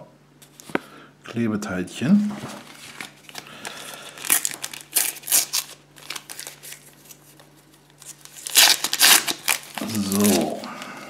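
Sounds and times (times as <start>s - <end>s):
plastic packet crinkling and tearing: 2.7s - 10.7s.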